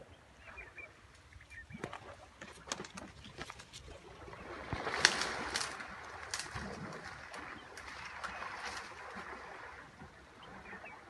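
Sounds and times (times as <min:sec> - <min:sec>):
dry reeds rustling: 0:02.6 - 0:09.8.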